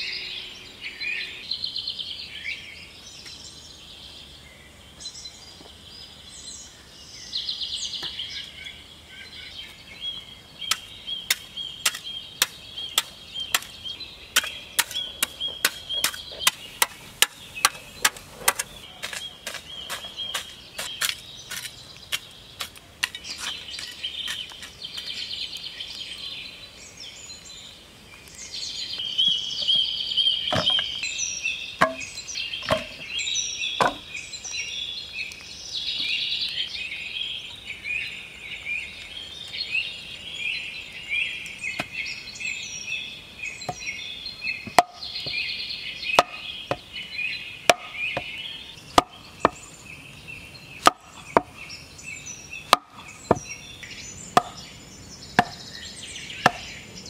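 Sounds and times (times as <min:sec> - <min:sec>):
birds calling: 0:00.0 - 0:57.0
insects calling: 0:04.0 - 0:57.0
wooden stake being driven into soil: 0:10.7 - 0:13.8, 0:14.4 - 0:25.1, 0:31.8 - 0:33.1, 0:47.7 - 0:48.3, 0:49.0 - 0:49.6, 0:50.8 - 0:51.5, 0:52.7 - 0:53.5.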